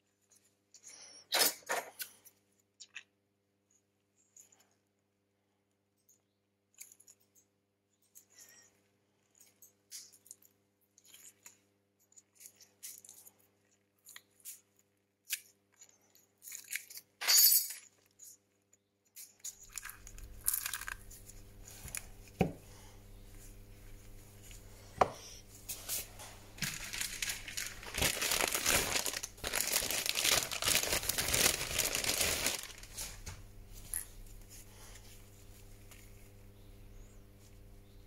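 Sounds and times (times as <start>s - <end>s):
steady low hum: 19.6s - 38.0s.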